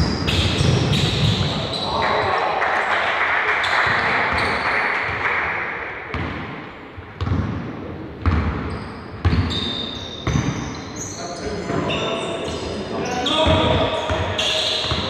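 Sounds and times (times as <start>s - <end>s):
basketball bouncing on wooden floor: 7.2s - 10.6s, 13.4s - 15.0s.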